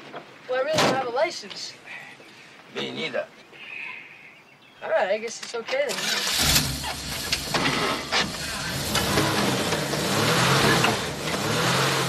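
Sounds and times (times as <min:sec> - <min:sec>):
car engine revving: 0:06.0 - 0:12.0.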